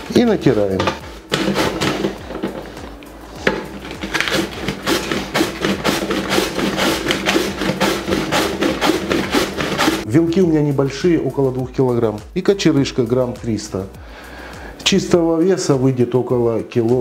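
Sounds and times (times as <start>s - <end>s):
cabbage rasping on slicer blade: 1.2s - 2.2s, 3.7s - 10.0s.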